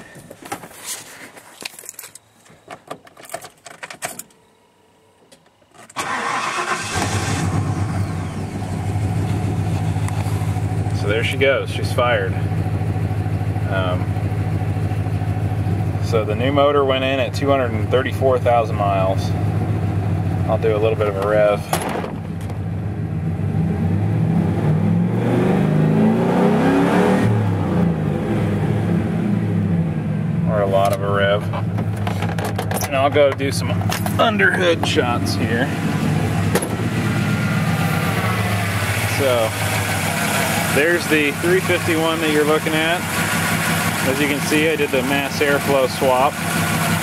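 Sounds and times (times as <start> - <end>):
starter cranking engine: 5.9 - 8.6
engine idling: 6.0 - 23.4, 29.5 - 47.0.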